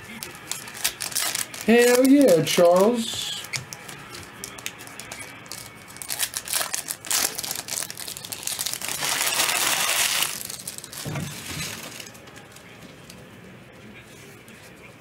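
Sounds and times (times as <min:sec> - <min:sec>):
wrapper crinkling and tearing: 0:00.0 - 0:12.2.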